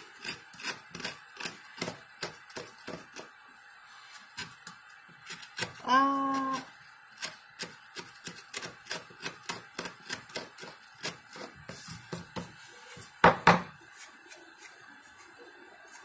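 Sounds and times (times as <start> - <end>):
blade trimming wooden board: 0.0 - 3.3, 4.3 - 12.5.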